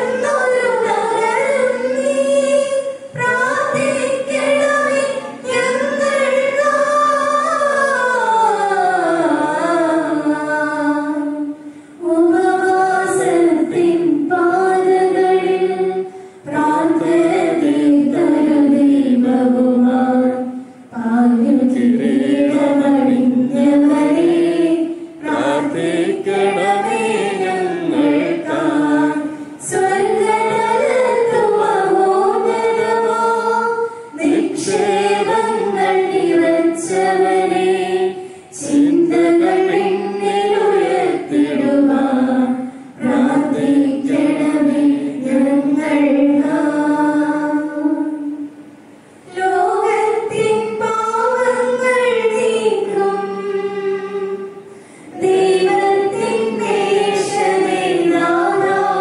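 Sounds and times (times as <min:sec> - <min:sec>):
group singing a slow hymn: 0:00.0 - 0:48.5, 0:49.3 - 0:59.0.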